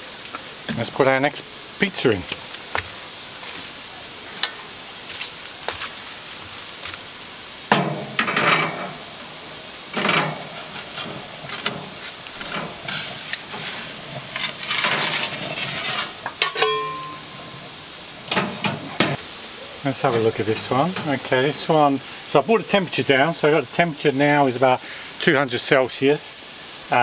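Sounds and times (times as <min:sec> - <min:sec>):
steady hiss: 0:00.0 - 0:27.0
metal peel scraping oven stone: 0:07.7 - 0:09.0, 0:09.9 - 0:19.2
sharp metallic clinks: 0:16.4 - 0:17.4
metallic ring: 0:16.4 - 0:17.6.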